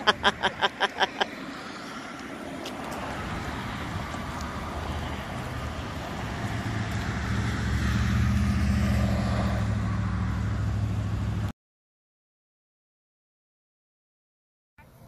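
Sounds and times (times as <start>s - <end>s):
outdoor background noise: 0.0s - 11.5s, 14.8s - 15.0s.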